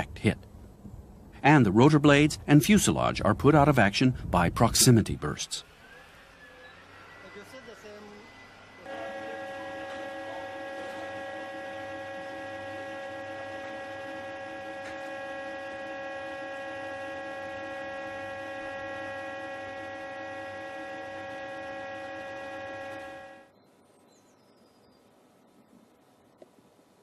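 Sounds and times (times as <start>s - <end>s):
electronic hum of held tones: 4.6s - 23.7s.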